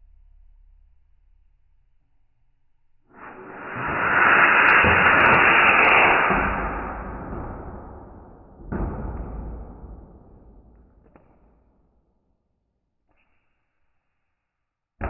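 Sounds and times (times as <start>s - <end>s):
rocket launch roar: 3.1s - 8.6s.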